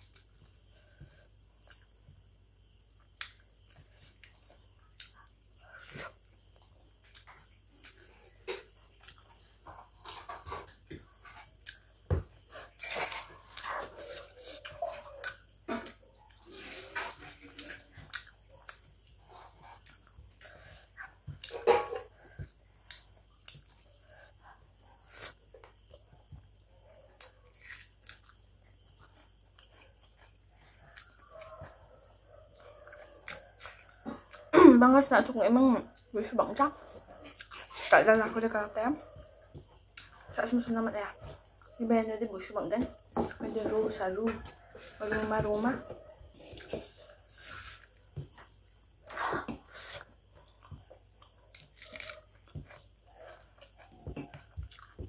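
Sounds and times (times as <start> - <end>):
chewing crunches and mouth clicks: 2.9 - 26.0, 27.1 - 31.6, 37.2 - 37.9, 46.3 - 55.0.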